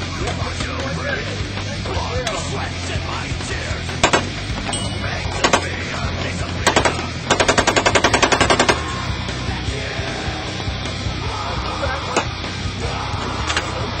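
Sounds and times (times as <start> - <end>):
machine gun firing bursts: 6.7 - 8.8.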